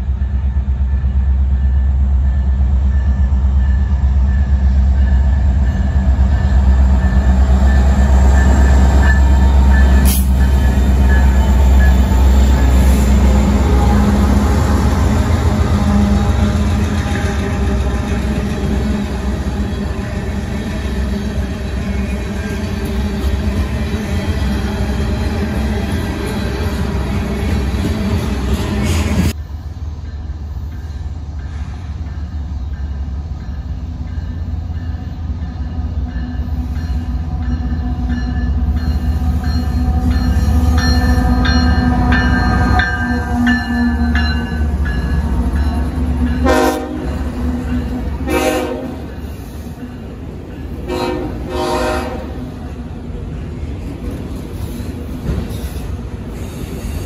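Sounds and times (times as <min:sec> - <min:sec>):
freight train cars rumbling past: 0:00.0 - 0:57.0
locomotive horn chord: 0:46.4 - 0:47.3, 0:48.2 - 0:49.1, 0:50.8 - 0:52.5
short horn blasts: 0:48.3 - 0:49.0, 0:50.9 - 0:52.4.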